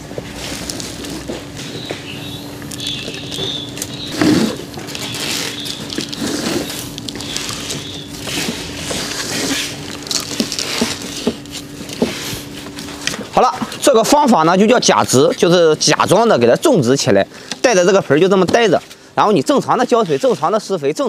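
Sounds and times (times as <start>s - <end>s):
potting soil pouring and rustling: 0.3s - 1.3s, 2.7s - 17.1s, 17.7s - 20.9s.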